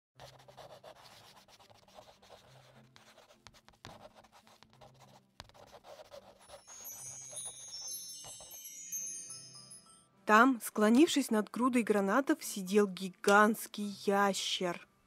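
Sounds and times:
pen scratching on paper: 0:00.2 - 0:08.4.

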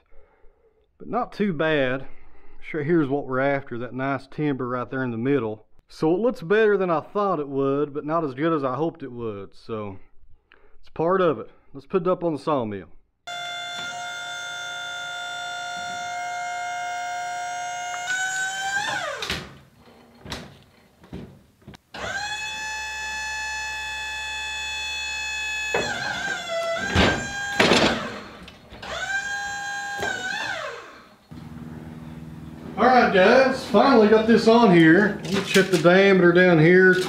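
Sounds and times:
hydraulic pump whining: 0:13.3 - 0:21.0, 0:21.8 - 0:37.0.

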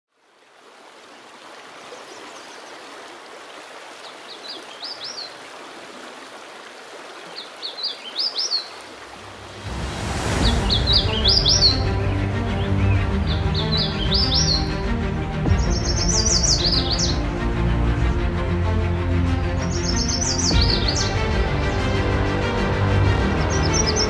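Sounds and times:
stream water rushing: 0:00.1 - 0:24.0
songbird singing: 0:01.9 - 0:03.0, 0:04.0 - 0:05.4, 0:07.2 - 0:17.7, 0:19.0 - 0:24.0
music with deep low notes: 0:10.4 - 0:24.0.

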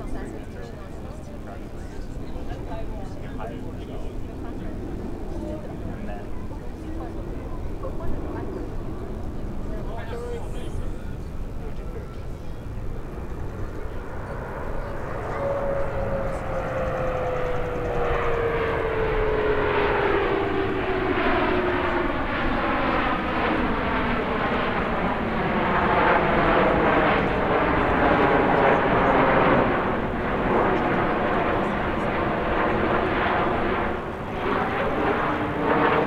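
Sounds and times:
jet engines flying past: 0:00.0 - 0:36.0
whine gliding down in pitch: 0:13.7 - 0:25.4.

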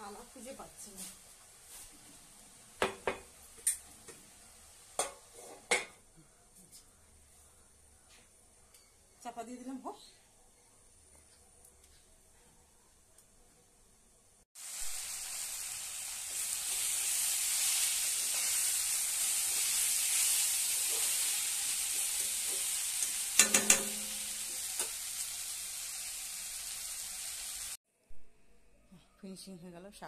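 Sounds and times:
greens sizzling in a pan: 0:00.0 - 0:05.7, 0:14.6 - 0:27.8
spatula stirring: 0:16.3 - 0:24.0
spatula knocking against pan: 0:23.4 - 0:24.0.

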